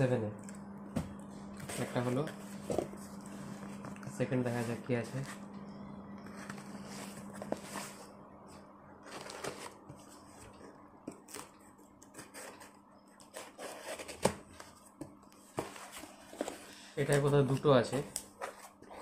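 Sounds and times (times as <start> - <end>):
cardboard flaps rustling and scraping: 6.3 - 8.1, 9.0 - 11.5.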